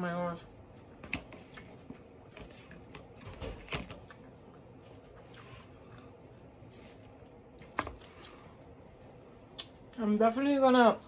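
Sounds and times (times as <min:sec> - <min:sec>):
quiet chewing: 0:04.0 - 0:08.4.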